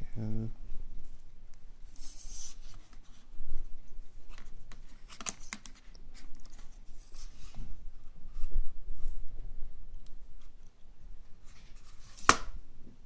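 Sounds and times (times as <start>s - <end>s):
phone handling rustle: 4.3s - 6.8s.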